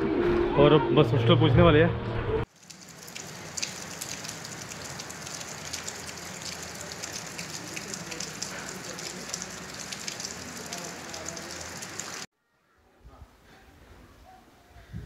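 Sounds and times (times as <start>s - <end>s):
rain falling: 2.5s - 12.3s.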